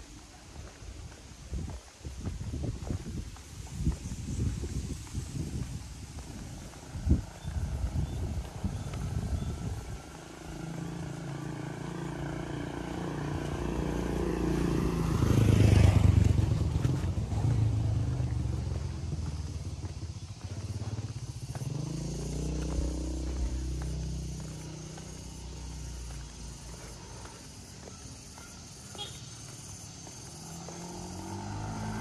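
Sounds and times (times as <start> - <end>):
second engine approaching: 3.8 - 32.0
vehicle engine passing by: 4.1 - 32.0.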